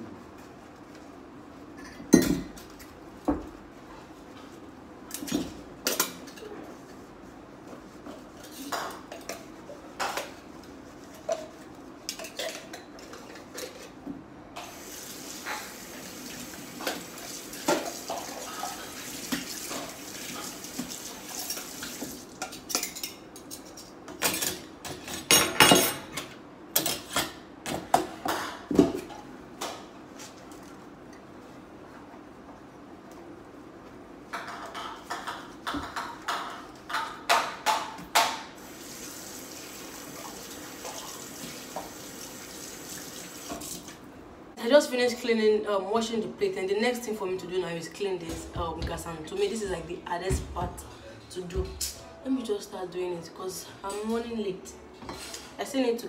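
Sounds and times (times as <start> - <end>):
dishes clinking in a metal sink: 1.8 - 2.9, 11.2 - 14.0, 16.8 - 29.2, 54.9 - 55.6.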